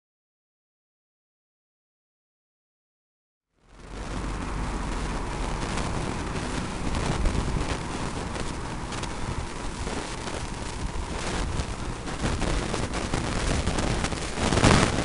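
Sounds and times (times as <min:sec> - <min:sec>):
street traffic: 0:03.6 - 0:15.0
wind buffeting microphone: 0:03.8 - 0:15.0.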